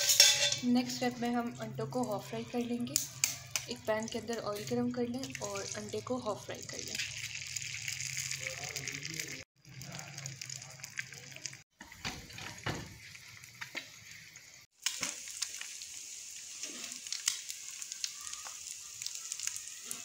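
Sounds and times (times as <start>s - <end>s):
eggs sizzling in frying pan: 0.0s - 20.0s
crackling pops of oil: 14.8s - 15.6s.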